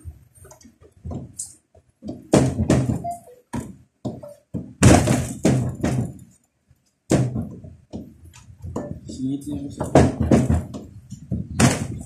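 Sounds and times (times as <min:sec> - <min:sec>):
dough thumping on steel table: 0:02.0 - 0:06.2, 0:07.1 - 0:12.0.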